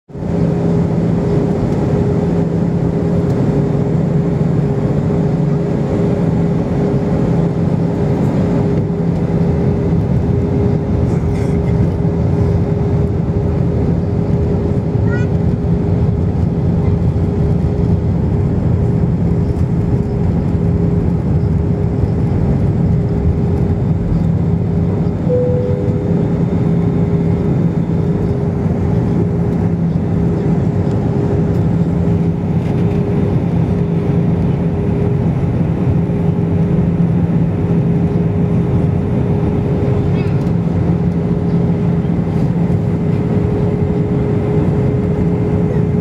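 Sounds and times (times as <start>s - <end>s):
airliner engine drone: 0.1s - 46.0s
low steady hum: 7.4s - 46.0s
high steady tone: 25.2s - 27.4s.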